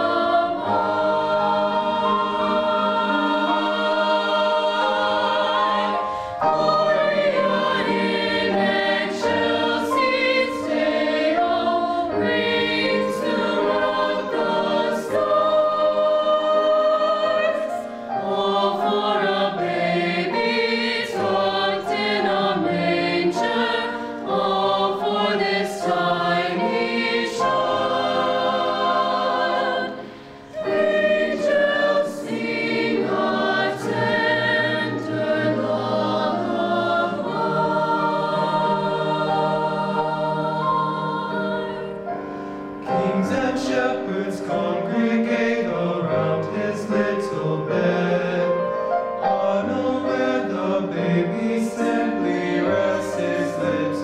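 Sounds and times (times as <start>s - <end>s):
choir singing in harmony: 0.0s - 54.0s.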